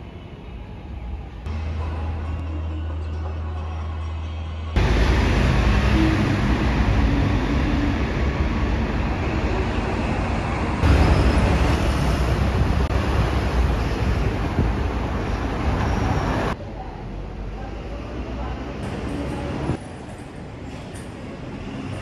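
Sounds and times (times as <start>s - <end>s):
passing vehicles rumble and hiss: 4.8s - 18.7s.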